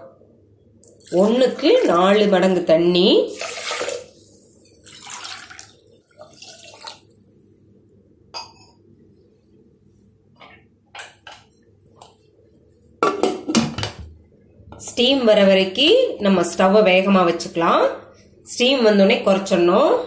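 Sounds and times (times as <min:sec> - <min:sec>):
water pouring and splashing: 0:03.3 - 0:07.3.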